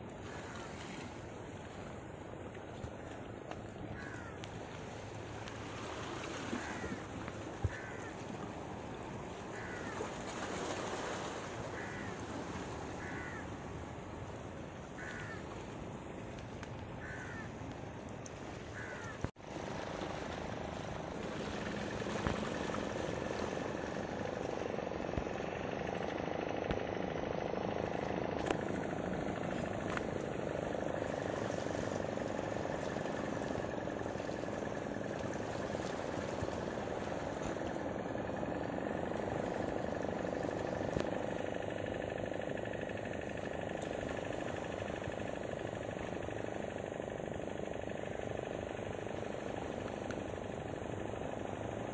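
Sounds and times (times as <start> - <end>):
faint steady drone: 0.0 - 51.9
wind: 0.0 - 51.9
sea water washing on rocks: 0.1 - 14.1.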